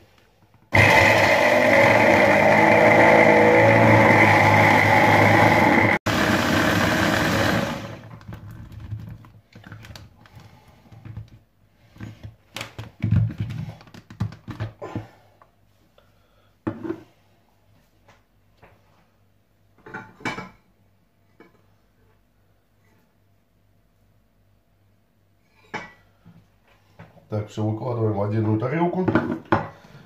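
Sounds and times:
hand blender motor chopping: 0.7s - 8.1s.

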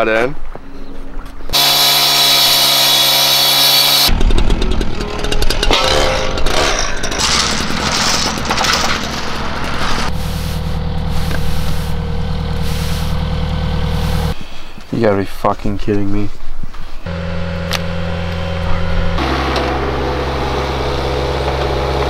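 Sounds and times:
saw cutting roughly: 1.5s - 10.4s
gas-powered saw engine: 1.5s - 14.4s, 17.1s - 22.0s.

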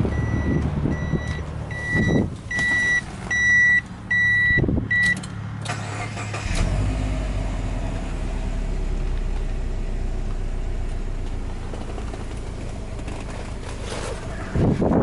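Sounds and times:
car engine idling: 0.0s - 15.0s
car warning chime beeping: 0.1s - 5.2s
car starter cranking: 5.0s - 7.0s.

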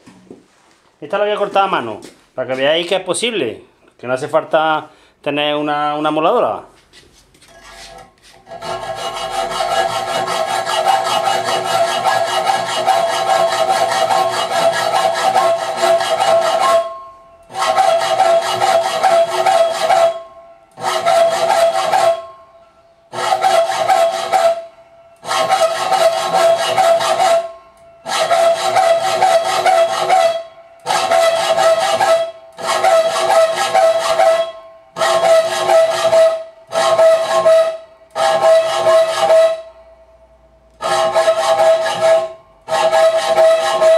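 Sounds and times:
hacksaw cutting metal: 7.4s - 22.4s, 23.1s - 39.7s, 40.8s - 43.9s.

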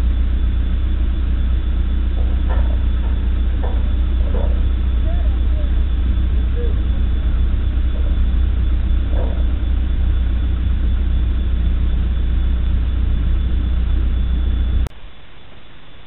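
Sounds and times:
diesel engine idling: 0.0s - 14.9s.

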